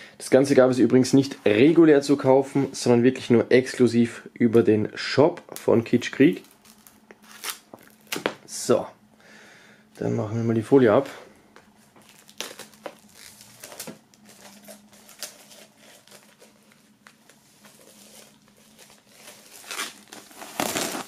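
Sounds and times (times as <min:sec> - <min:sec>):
plastic wrap crinkling: 0:05.5 - 0:08.4, 0:11.8 - 0:21.0.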